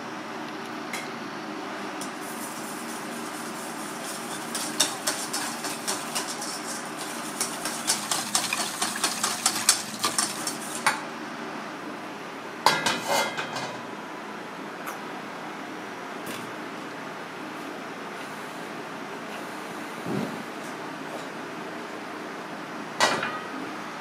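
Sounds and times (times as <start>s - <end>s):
whisk beating sauce in metal bowl: 2.4s - 11.0s.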